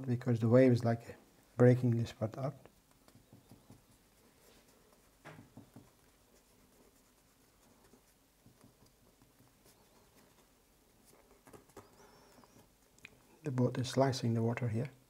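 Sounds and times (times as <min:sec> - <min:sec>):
fingers tapping and rubbing paste: 0:02.6 - 0:04.2, 0:04.9 - 0:10.5, 0:11.1 - 0:13.2.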